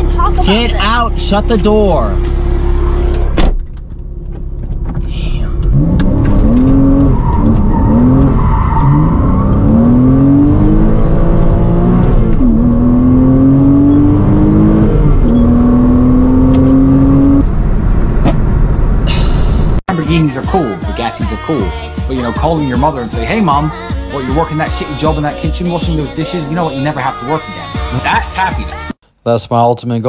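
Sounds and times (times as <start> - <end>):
car engine accelerating hard: 0.0 - 19.0.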